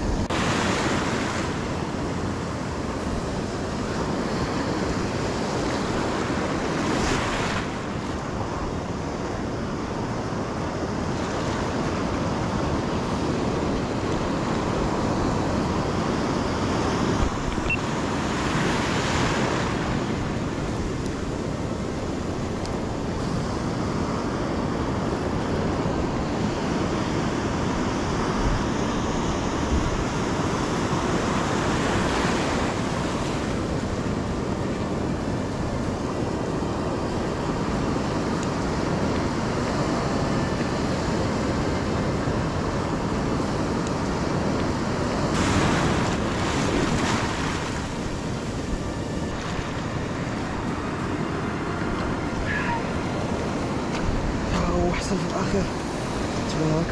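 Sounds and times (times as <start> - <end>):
surf breaking over rocks: 0.0 - 9.9, 25.0 - 56.9
wind buffeting microphone: 0.0 - 56.9
wave crashes: 45.3 - 48.2.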